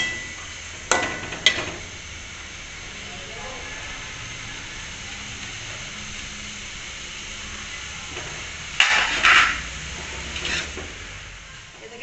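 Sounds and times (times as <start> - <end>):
cabbage frying in a pan: 0.0 - 12.0
metal spoon scraping a pan: 8.1 - 11.1.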